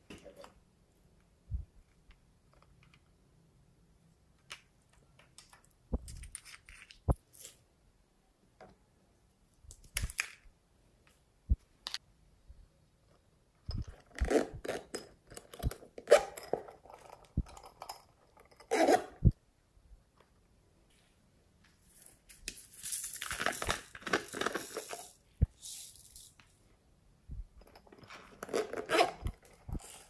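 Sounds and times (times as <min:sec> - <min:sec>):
hands handling plastic toys: 0:04.4 - 0:07.6, 0:09.6 - 0:11.2, 0:21.6 - 0:26.6.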